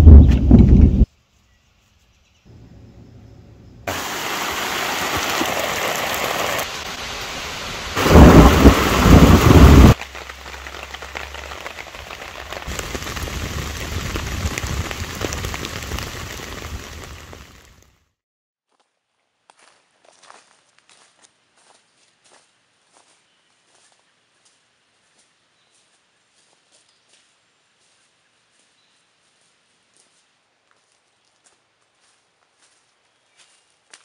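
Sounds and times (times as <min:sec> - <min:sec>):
heavy rain hissing: 0:03.9 - 0:17.9
loud thunderclap: 0:08.0 - 0:10.0, 0:12.7 - 0:17.2.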